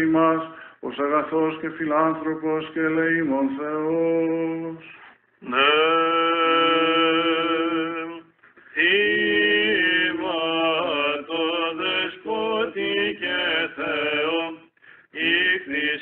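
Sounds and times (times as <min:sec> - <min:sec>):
men chanting: 0:05.4 - 0:16.0.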